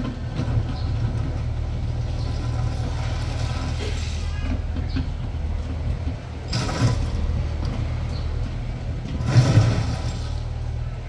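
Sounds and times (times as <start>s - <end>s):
excavator engine running: 0.0s - 11.0s
bucket scraping through gravel: 2.5s - 4.4s, 6.5s - 7.4s, 9.1s - 10.6s.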